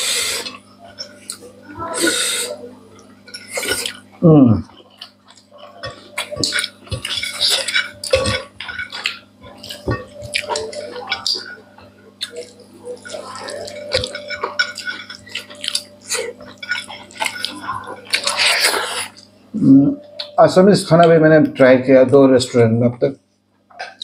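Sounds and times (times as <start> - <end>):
faint low hum: 0.0 - 24.0
chewing and lip smacking: 4.7 - 19.3.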